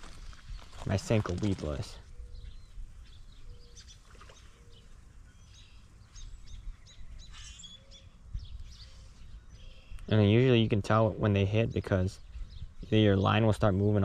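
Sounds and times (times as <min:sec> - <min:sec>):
songbirds chirping: 0:00.0 - 0:14.0.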